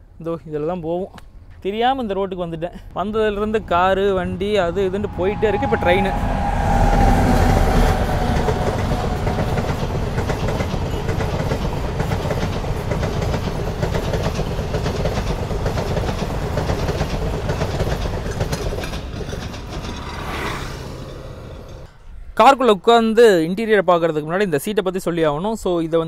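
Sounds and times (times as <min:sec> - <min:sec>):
train wheels clattering: 0:05.6 - 0:21.9.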